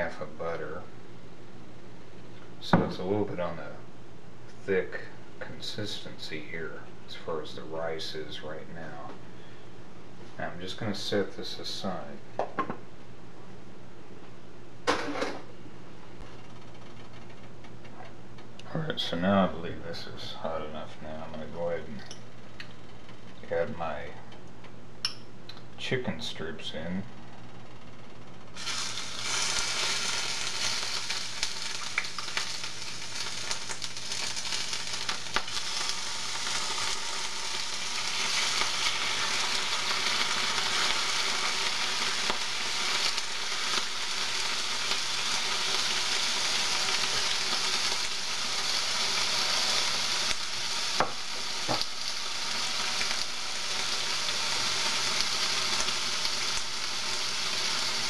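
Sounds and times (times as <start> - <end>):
chicken sizzling in oil: 28.6 - 58.0.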